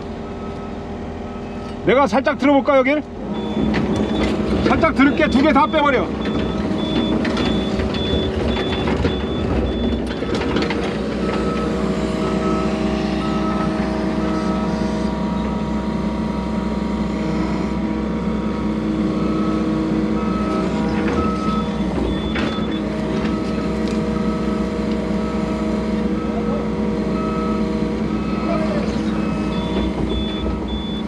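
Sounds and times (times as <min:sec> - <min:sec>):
excavator diesel engine running: 0:00.0 - 0:31.0
machine warning beeper: 0:03.3 - 0:10.4, 0:11.2 - 0:15.6, 0:20.2 - 0:25.6, 0:28.2 - 0:31.0.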